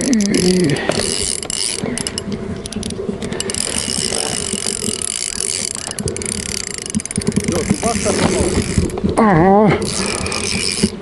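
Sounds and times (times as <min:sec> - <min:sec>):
fishing reel clicking: 0:00.0 - 0:09.1, 0:09.8 - 0:11.0.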